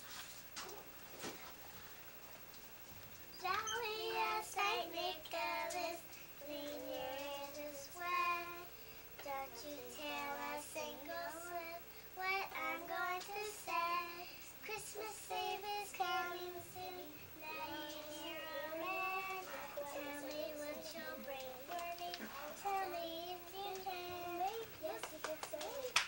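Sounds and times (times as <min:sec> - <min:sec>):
young children singing: 0:03.4 - 0:25.9.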